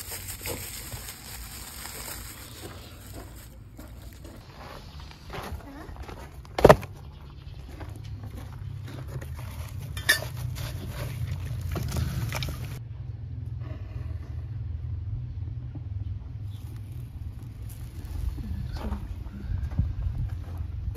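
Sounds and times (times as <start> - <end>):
low rumble: 10.6 - 20.9.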